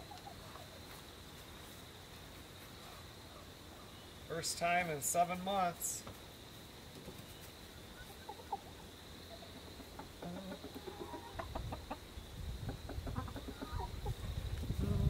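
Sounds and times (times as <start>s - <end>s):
chickens clucking: 0.0s - 1.0s, 6.9s - 15.0s.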